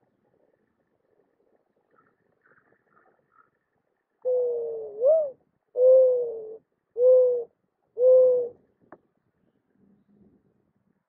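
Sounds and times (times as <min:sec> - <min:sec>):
mourning dove cooing: 0:04.2 - 0:08.6.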